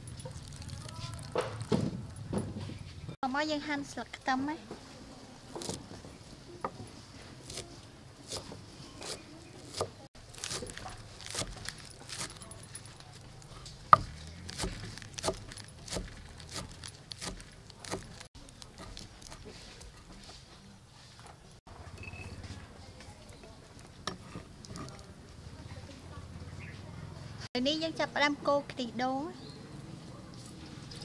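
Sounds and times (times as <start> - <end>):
knife chopping on wooden board: 7.4 - 12.6, 13.9 - 20.2.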